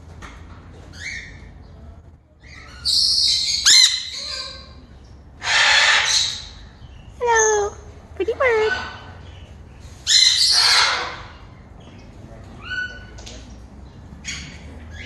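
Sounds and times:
parrots squawking: 2.5s - 4.8s, 5.4s - 6.6s, 7.2s - 9.2s, 10.0s - 11.6s
parrot screech: 5.4s - 6.5s, 10.1s - 11.3s.

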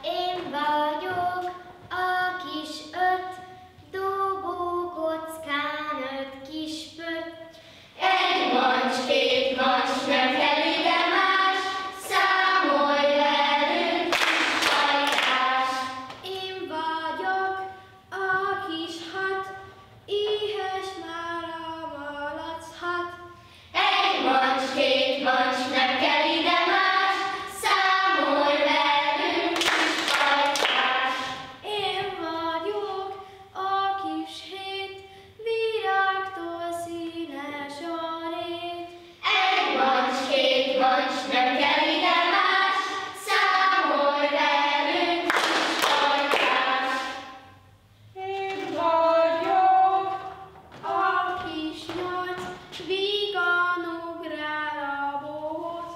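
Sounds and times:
children singing in unison: 8.0s - 16.1s, 23.8s - 32.0s, 39.2s - 47.5s.

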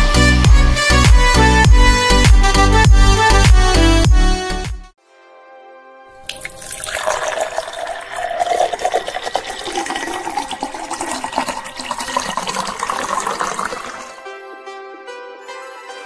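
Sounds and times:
water poured into a glass: 6.2s - 14.2s.

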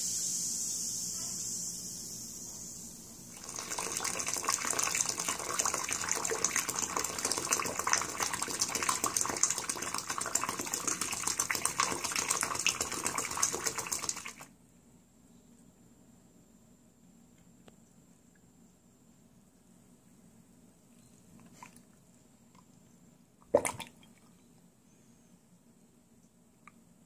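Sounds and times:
water pouring into sink drain: 3.3s - 14.5s.

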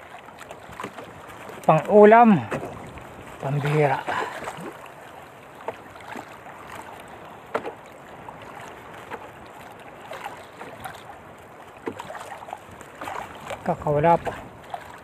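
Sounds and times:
water lapping against canoe hull: 0.0s - 15.0s
water slapping: 0.0s - 15.0s
strong wind: 13.1s - 14.8s.

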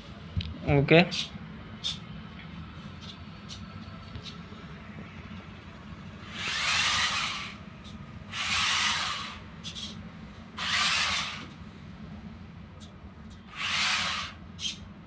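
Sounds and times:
toy car motors whirring: 6.3s - 7.6s, 8.3s - 10.0s, 10.6s - 11.5s, 13.5s - 14.8s.

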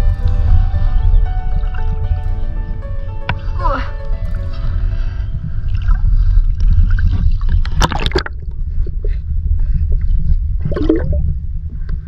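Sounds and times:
loud low rumble: 0.0s - 12.0s
creek water sloshing and splashing: 5.6s - 8.4s.

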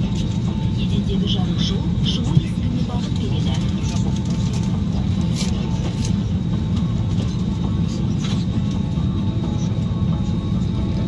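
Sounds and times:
airliner cabin rumble: 0.0s - 11.0s.

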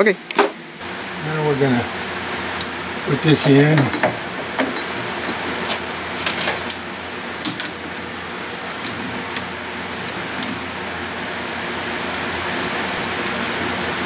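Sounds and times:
steady background hiss: 0.0s - 14.0s
metallic clicks and clinks: 5.6s - 6.8s.

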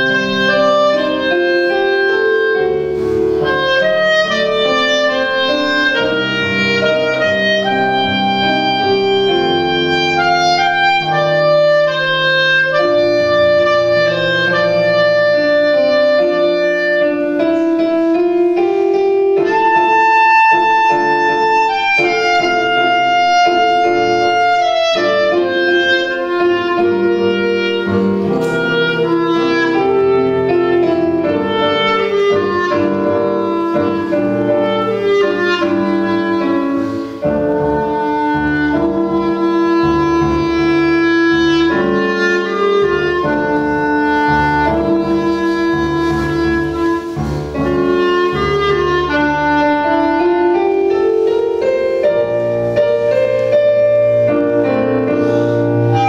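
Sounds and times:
clarinet melody: 0.0s - 56.0s
grand piano accompaniment: 0.0s - 56.0s.

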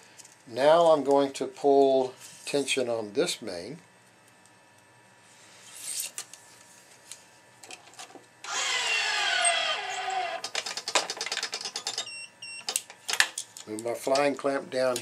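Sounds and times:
stringing machine whine: 8.4s - 10.5s.

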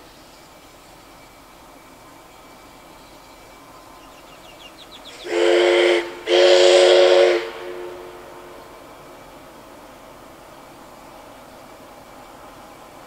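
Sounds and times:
steam hiss: 0.0s - 13.0s
steam locomotive whistle: 5.0s - 9.0s.

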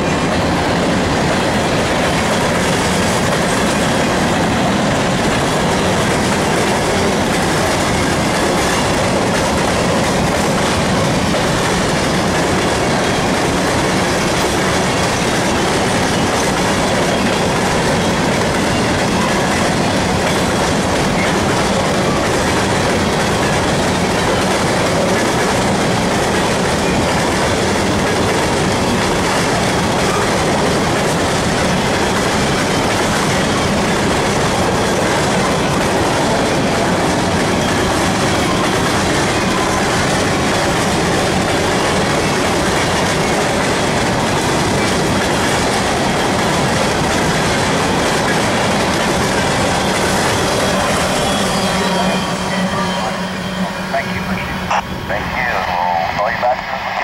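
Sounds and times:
freight train cars rolling past: 0.0s - 57.0s.

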